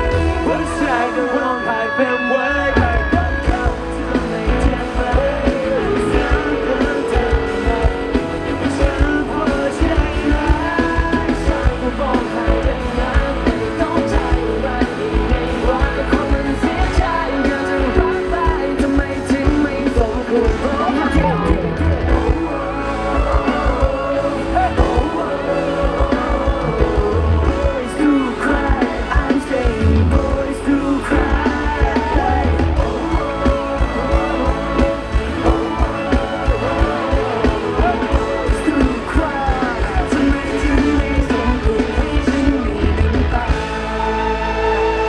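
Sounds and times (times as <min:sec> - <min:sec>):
bass guitar: 0:00.0 - 0:45.0
drums: 0:00.0 - 0:45.0
electric guitar: 0:00.0 - 0:45.0
person singing: 0:00.0 - 0:45.0.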